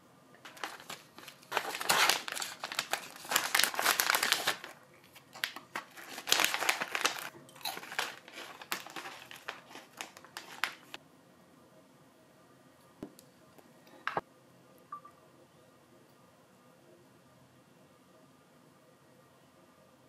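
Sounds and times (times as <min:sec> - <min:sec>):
plastic snack bag crinkling: 0:00.5 - 0:11.0.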